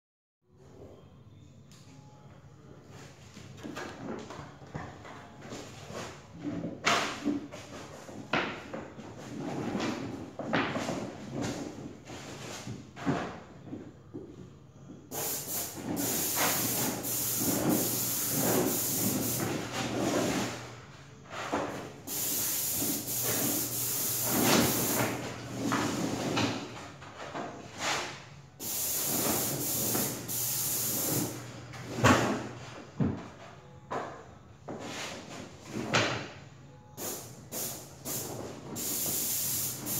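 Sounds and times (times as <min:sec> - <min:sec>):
paint sprayer hissing: 0:15.1 - 0:20.6, 0:22.1 - 0:25.3, 0:28.6 - 0:31.5, 0:37.0 - 0:39.9.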